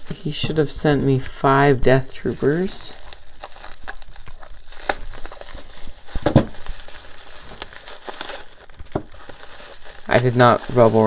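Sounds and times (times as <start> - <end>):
bubble wrap crinkling: 1.8 - 11.0
bubble wrap snaps: 2.5 - 11.0.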